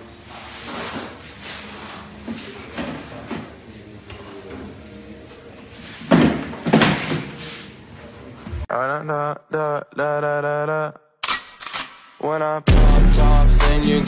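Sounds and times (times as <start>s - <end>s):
bin thump: 6.1s - 7.4s.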